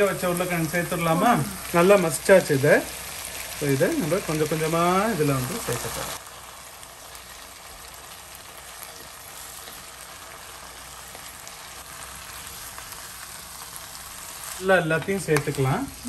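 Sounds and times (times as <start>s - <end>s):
food sizzling in a pan: 0.0s - 16.0s
small crackles: 1.5s - 16.0s.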